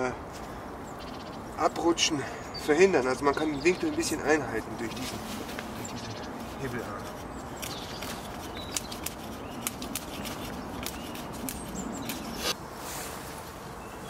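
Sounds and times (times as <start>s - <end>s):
blade scraping bark off log: 6.4s - 12.6s
sharp clicks of chips snapping: 8.7s - 12.2s.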